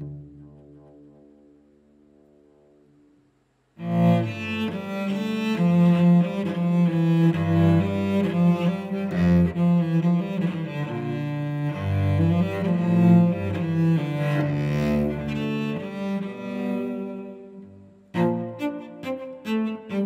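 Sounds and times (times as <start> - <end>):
bowed cello: 0.0 - 2.8, 3.8 - 20.0.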